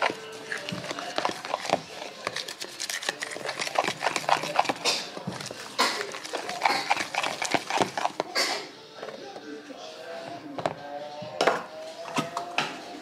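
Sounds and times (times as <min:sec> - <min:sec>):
metal spoon stirring batter: 0:00.0 - 0:09.3.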